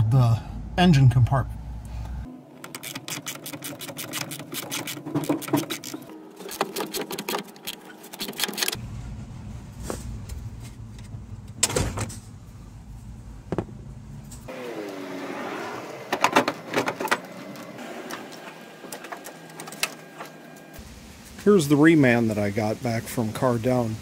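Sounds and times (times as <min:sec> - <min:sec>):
low rumble: 0:00.0 - 0:02.3, 0:08.8 - 0:14.4.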